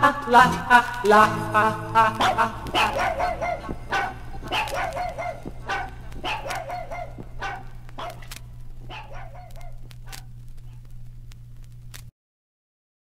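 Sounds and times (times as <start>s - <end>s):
low steady hum: 0.0s - 12.1s
dog barking: 2.2s - 10.8s.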